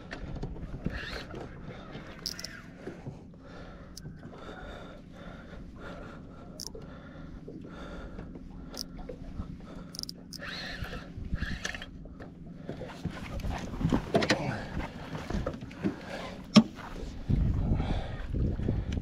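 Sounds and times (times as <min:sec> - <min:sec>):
steady low rumble: 0:01.6 - 0:19.0
fishing reel cranking: 0:02.1 - 0:02.7, 0:06.6 - 0:06.8, 0:09.9 - 0:11.9.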